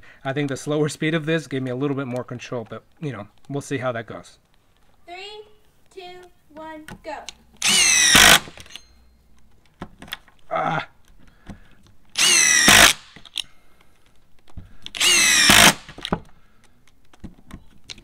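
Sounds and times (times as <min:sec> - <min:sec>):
impact driver driving screws into wood: 0:07.6 - 0:08.8, 0:11.5 - 0:13.5, 0:14.7 - 0:16.3.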